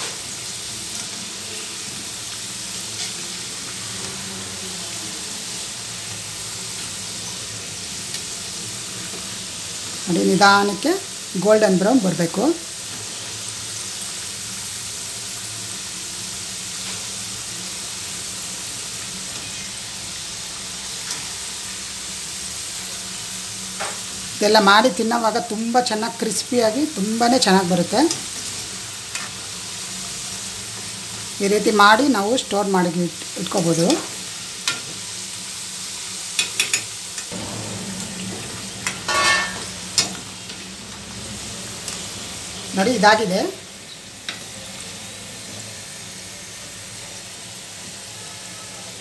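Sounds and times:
oil sizzling: 0.0s - 49.0s
ladle scraping pan: 38.0s - 40.2s.

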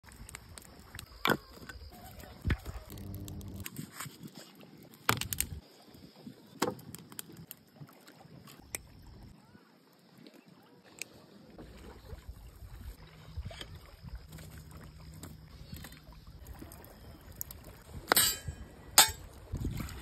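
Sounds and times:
firewood set down on rocks: 5.0s - 5.6s.

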